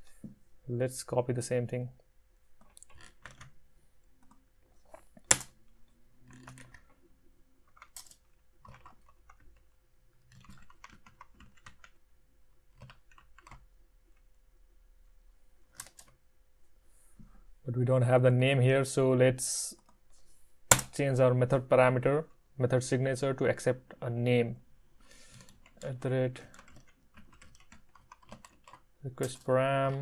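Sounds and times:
computer keyboard typing: 2.6s - 3.6s, 6.2s - 7.0s, 7.7s - 12.0s, 12.7s - 13.8s, 15.7s - 16.2s, 25.2s - 30.0s.

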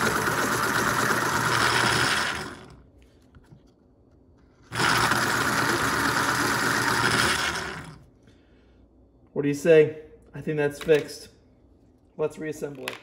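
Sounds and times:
electric pencil sharpener motor running: 0.0s - 2.8s, 4.7s - 8.0s
cutter grinding pencil: 4.7s - 8.0s.

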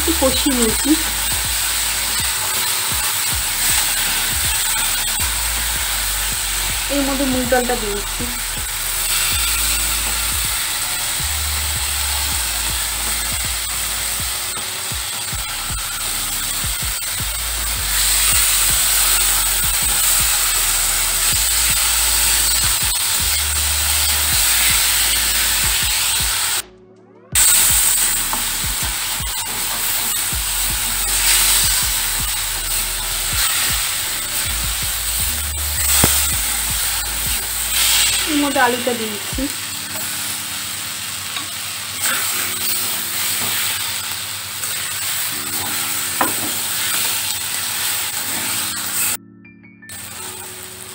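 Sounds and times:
lentils sizzling in hot oil: 0.0s - 26.6s, 27.4s - 49.2s, 49.9s - 50.9s.

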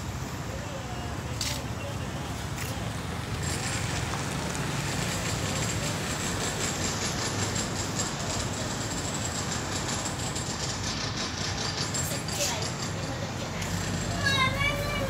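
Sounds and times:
small petrol engine running: 3.0s - 15.0s.

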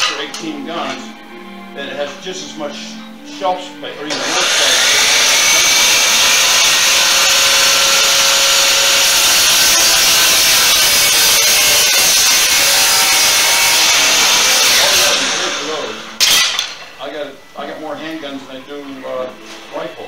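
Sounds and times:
chop saw cutting wood: 4.1s - 16.8s.

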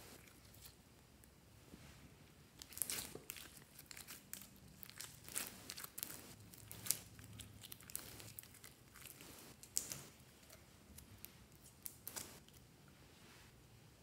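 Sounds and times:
slime sticky crackles and pops: 2.6s - 10.1s.

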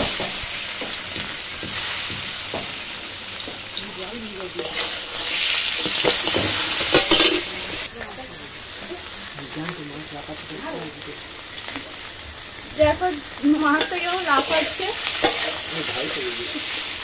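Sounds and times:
fish sizzling in hot oil: 0.0s - 17.0s
spatula scraping metal pan: 4.4s - 7.9s, 12.4s - 16.8s.

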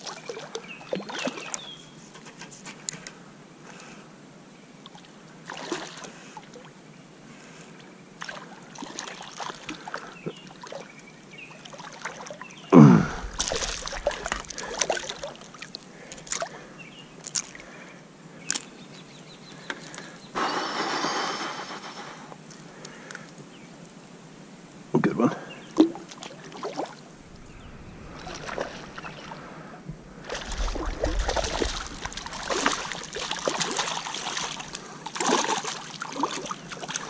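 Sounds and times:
river water sloshing: 4.8s - 6.7s, 8.2s - 17.8s, 25.8s - 37.0s
fish splashing: 13.1s - 16.5s, 26.2s - 37.0s
steady hiss: 20.3s - 25.3s, 27.0s - 35.1s.

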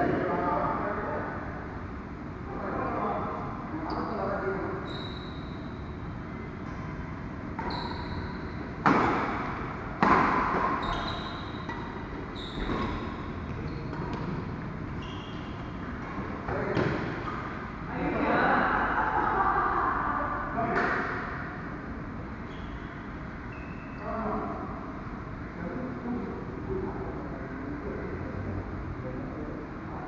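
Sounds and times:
shoe squeaks: 4.8s - 5.9s, 7.6s - 9.4s, 10.7s - 16.0s, 22.4s - 24.1s
voices: 17.9s - 21.2s.

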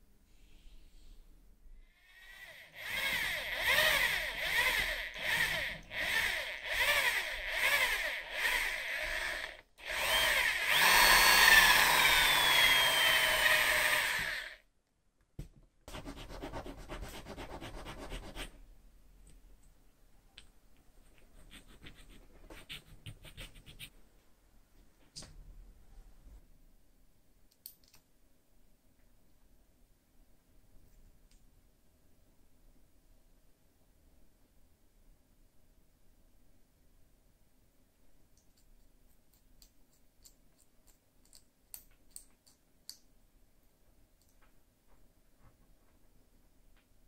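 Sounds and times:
electric drill boring into wood: 2.1s - 14.6s.

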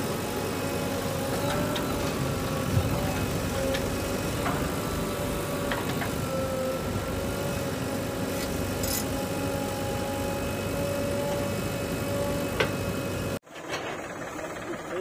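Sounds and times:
diesel engines running: 0.0s - 15.0s.

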